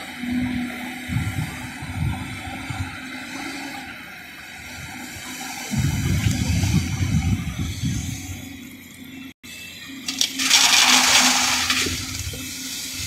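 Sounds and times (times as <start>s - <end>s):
bucket scraping into stone: 10.1s - 12.5s
loose stone pouring: 10.1s - 12.6s.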